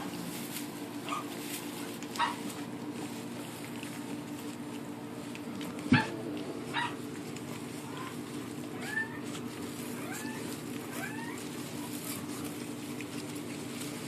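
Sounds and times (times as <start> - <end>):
steady low hum: 0.0 - 14.0
puppies whimpering: 5.8 - 13.7.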